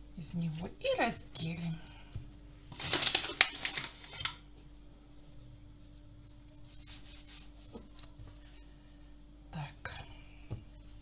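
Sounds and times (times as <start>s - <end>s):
faint rubbing of dough: 5.2s - 8.8s
hands rustling and patting dough: 5.3s - 8.6s.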